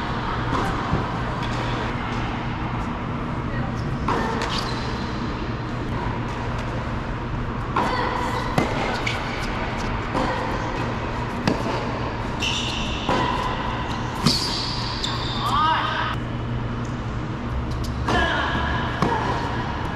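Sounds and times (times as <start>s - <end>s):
steady low hum: 0.0s - 19.9s
shoe squeaks: 4.4s - 5.2s, 12.3s - 15.7s
racket hitting ball: 7.7s - 12.1s, 12.9s - 14.9s.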